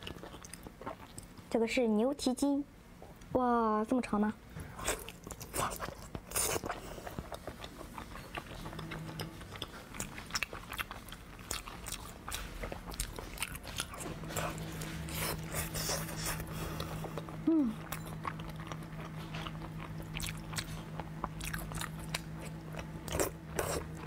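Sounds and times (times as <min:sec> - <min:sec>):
biting and chewing: 0:04.9 - 0:24.0.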